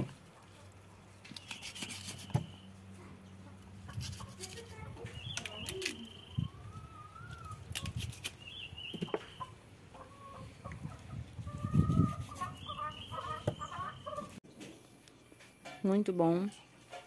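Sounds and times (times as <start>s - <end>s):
chickens clucking: 6.4s - 7.9s, 8.8s - 14.4s.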